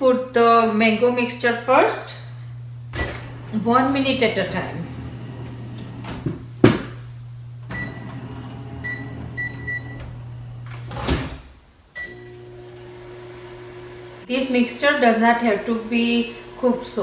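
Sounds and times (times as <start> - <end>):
microwave humming: 0.8 - 17.0
drawer sliding shut: 7.8 - 11.5
short keypad beeps: 8.8 - 10.0.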